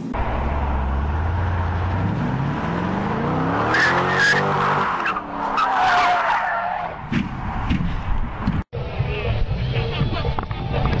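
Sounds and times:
car engine revving: 0.0 - 5.6.

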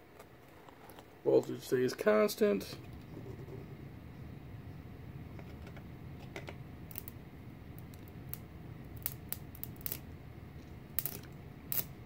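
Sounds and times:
steady low hum: 0.0 - 12.0
electrical sparks crackling: 6.8 - 7.2, 7.8 - 10.2, 10.9 - 12.0.

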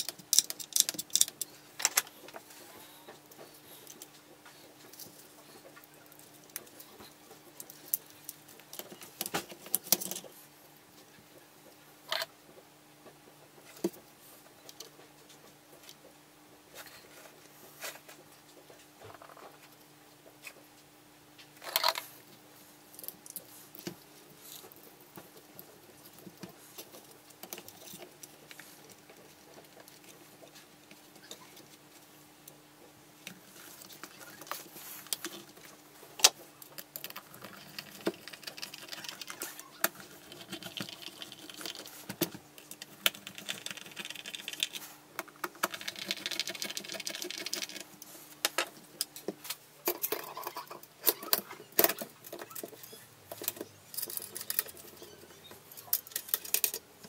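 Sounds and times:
metal parts clicking and scraping: 0.0 - 2.2, 21.6 - 22.1, 49.8 - 56.9
faint steady hum: 0.0 - 57.0.

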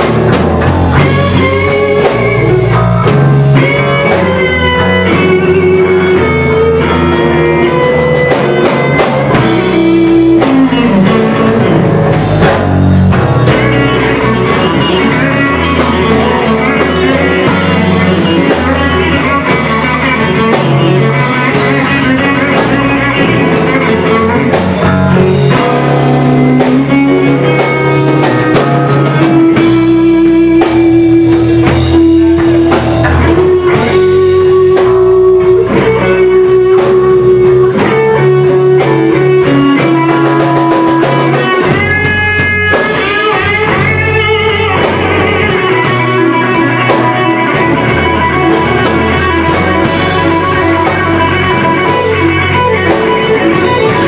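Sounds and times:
drum kit: 0.0 - 54.0
electric guitars: 0.0 - 54.0
held lead guitar note: 0.0 - 54.0.

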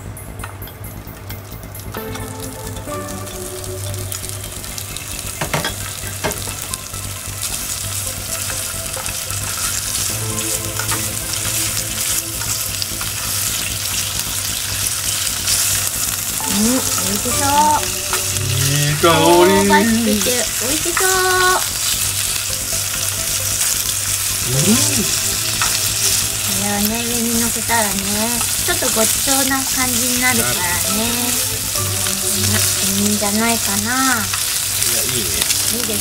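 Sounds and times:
meat sizzling in a frying pan: 1.6 - 36.0
person speaking: 16.4 - 21.6, 24.4 - 25.3, 26.5 - 31.4, 32.2 - 33.9.

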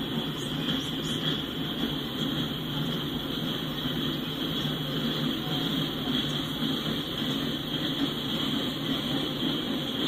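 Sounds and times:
constant high hiss: 0.0 - 10.0
steel wheels rumbling on rail: 0.0 - 10.0.

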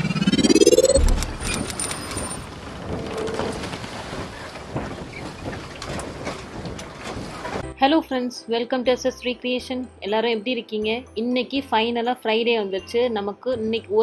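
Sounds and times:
low boom: 0.0 - 1.7
rising sweep: 0.0 - 1.9.

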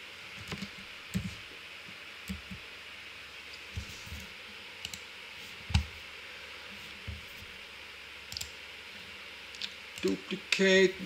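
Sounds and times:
computer keyboard keystrokes: 8.3 - 8.5.

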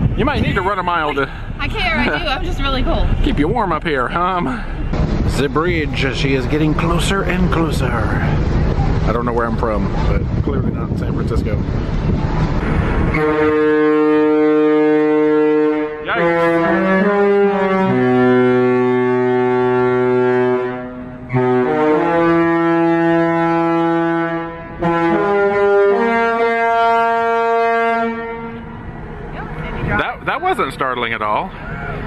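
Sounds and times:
ship horn playing a tune: 12.0 - 30.0.

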